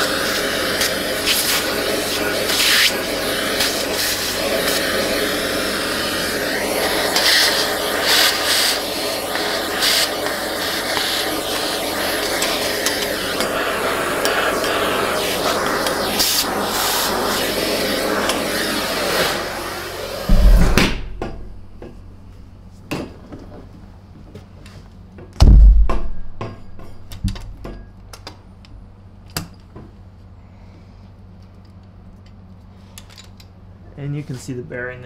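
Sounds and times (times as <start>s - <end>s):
vacuum hose air rush: 0.0s - 22.1s
heavy thumps: 20.3s - 22.3s, 25.4s - 27.7s.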